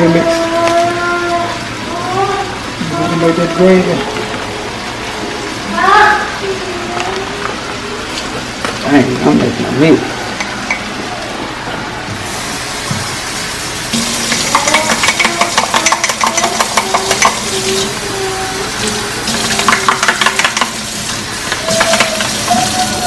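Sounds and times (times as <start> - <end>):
spoon clinking and scraping a mug: 14.3 - 17.4.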